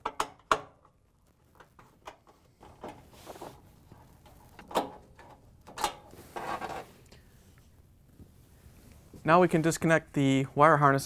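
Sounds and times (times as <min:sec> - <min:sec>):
scraping rustle: 0:02.8 - 0:04.6, 0:06.1 - 0:07.0.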